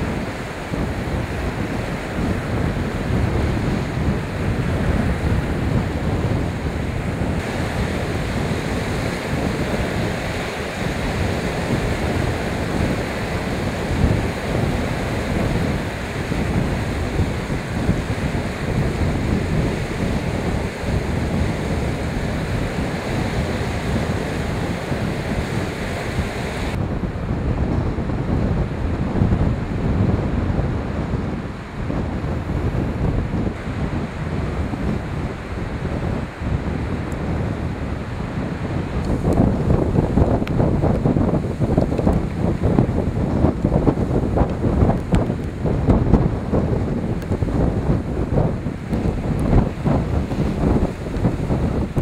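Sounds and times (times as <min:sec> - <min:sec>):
surf on pebble beach: 0:00.0 - 0:52.0
wind buffeting microphone: 0:00.0 - 0:52.0.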